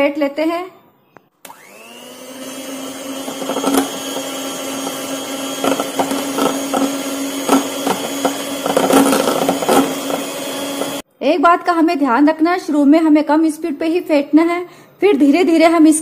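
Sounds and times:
electric hand mixer running: 1.4 - 11.0.

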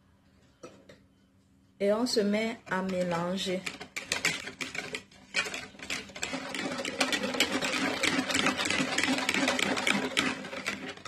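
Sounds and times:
whisk beating eggs in bowl: 2.7 - 11.0.

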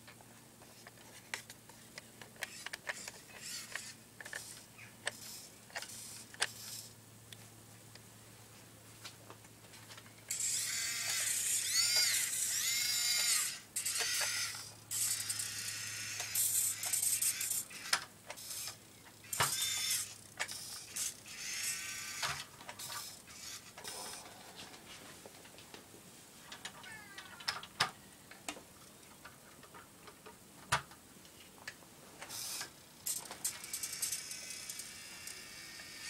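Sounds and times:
small electric motor and gears whining: 0.6 - 7.0, 10.2 - 24.5, 26.5 - 28.0, 32.2 - 36.0.

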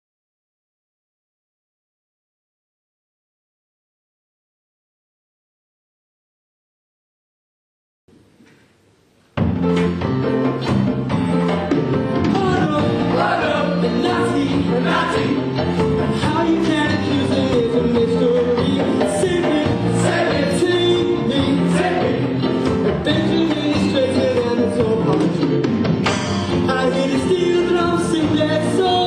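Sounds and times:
musical theatre song with singing: 9.5 - 29.0.

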